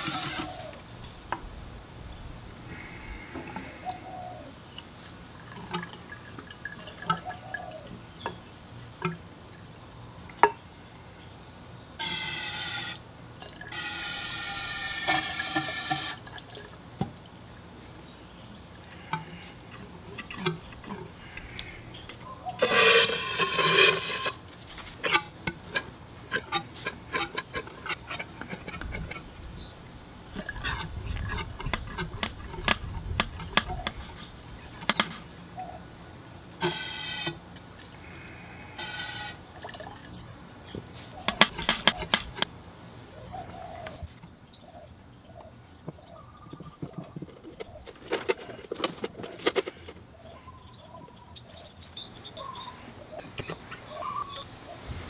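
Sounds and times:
handling clicks and knocks: 0:45.8 - 0:50.1.

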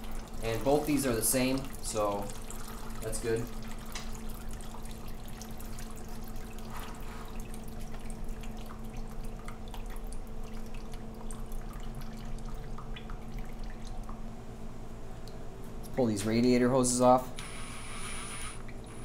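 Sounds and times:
coolant dripping: 0:00.0 - 0:14.3
steady low hum: 0:00.0 - 0:19.0.

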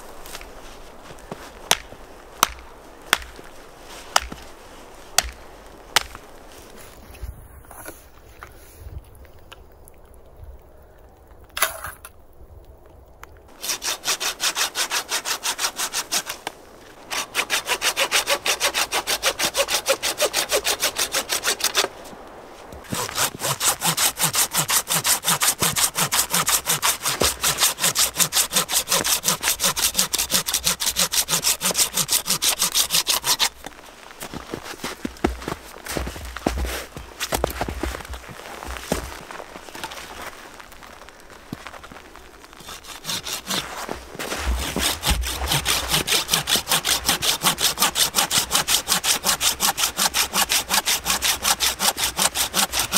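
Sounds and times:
pruning saw cutting wood: 0:13.6 - 0:16.5, 0:17.1 - 0:22.0, 0:22.8 - 0:33.6, 0:42.6 - 0:52.9.

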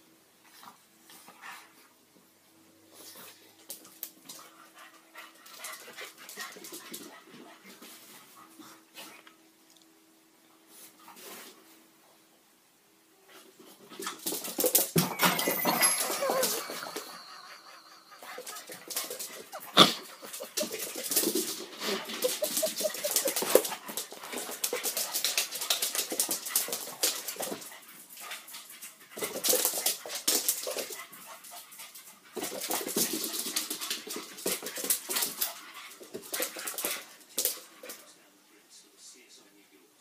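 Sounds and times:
dogs scuffling: 0:13.3 - 0:38.2
claws clicking on tile floor: 0:18.3 - 0:28.4.

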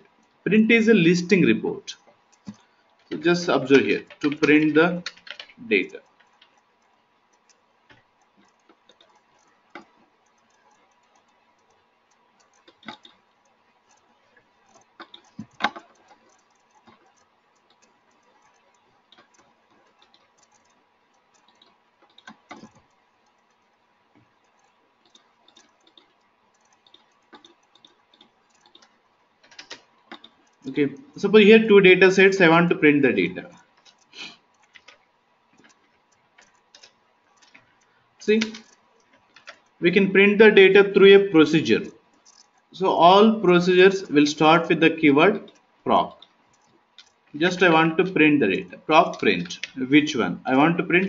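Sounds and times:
computer mouse clicks: 0:00.0 - 0:51.0
faint steady hum: 0:00.0 - 0:51.0
keyboard keystrokes: 0:04.0 - 0:06.6, 0:12.4 - 0:23.6, 0:24.2 - 0:31.1, 0:33.8 - 0:35.0, 0:35.6 - 0:37.8.

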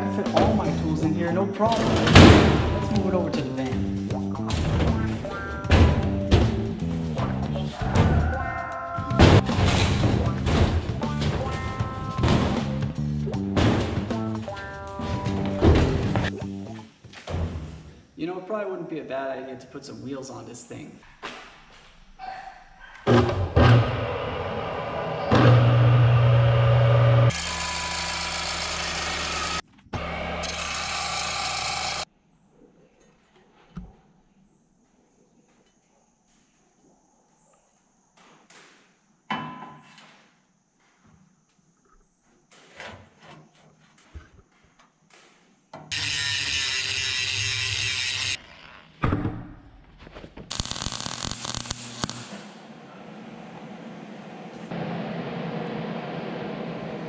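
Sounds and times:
saw motor hum: 0:23.6 - 0:32.0, 0:45.9 - 0:48.9
saw blade grinding metal: 0:27.3 - 0:32.0, 0:45.9 - 0:48.7.

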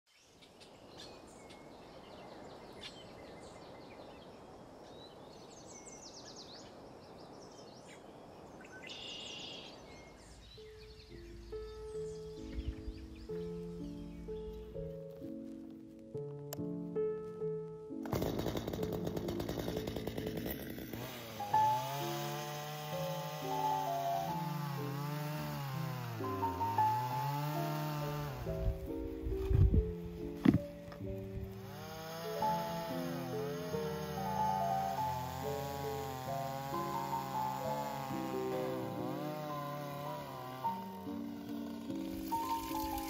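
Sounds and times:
songbirds chirping: 0:00.1 - 0:17.5
descending whistled bird notes: 0:08.6 - 0:14.5
slow melody of held notes: 0:09.8 - 0:18.0, 0:21.3 - 0:43.0.

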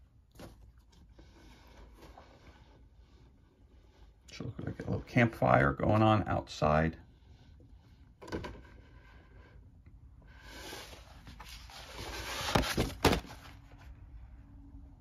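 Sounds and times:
paper rustling: 0:10.6 - 0:13.9
paper sheet flapping: 0:11.3 - 0:13.9.

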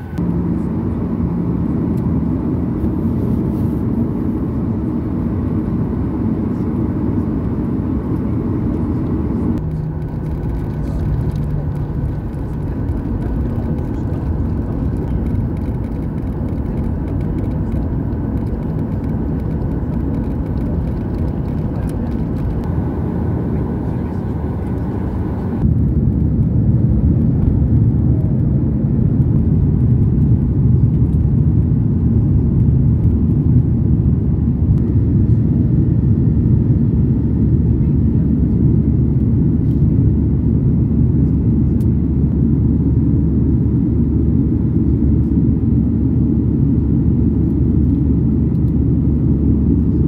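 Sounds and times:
jet engine rumble in cabin: 0:00.0 - 0:50.0.

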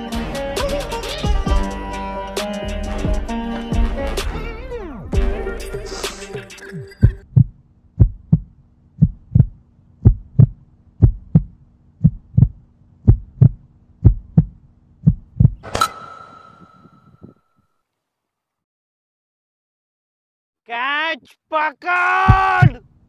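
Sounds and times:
heartbeat thumps: 0:07.0 - 0:15.6.

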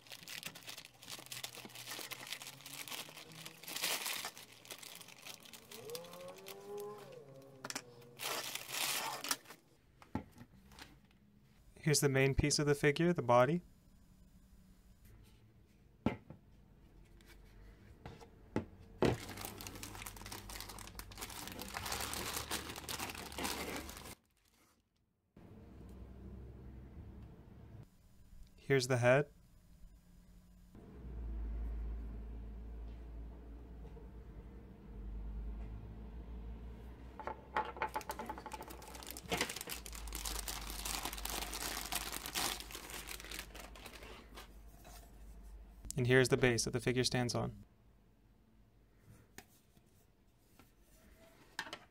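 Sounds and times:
plastic bag crinkling: 0:00.0 - 0:07.2, 0:08.1 - 0:09.6, 0:19.1 - 0:24.6, 0:37.9 - 0:44.5.

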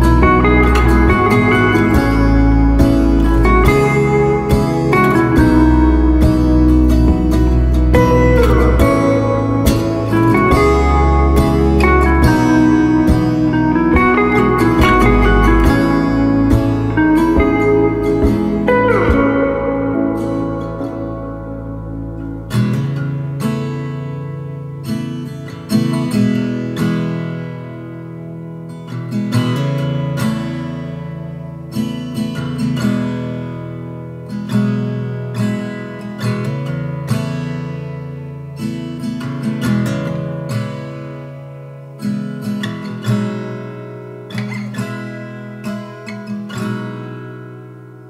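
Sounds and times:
plucked acoustic guitar music: 0:00.0 - 0:48.0.

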